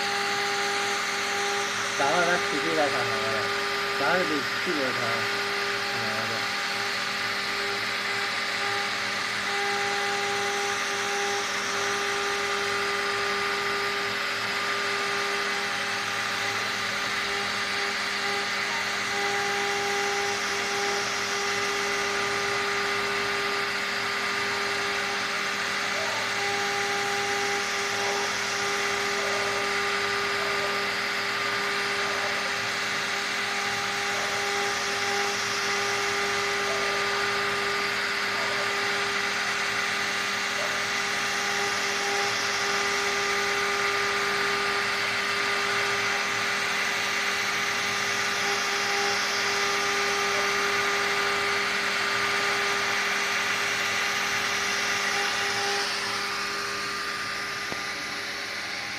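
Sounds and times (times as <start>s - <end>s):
bit cutting wood hiss: 0.0s - 7.5s
engraving spindle whining: 0.0s - 58.9s.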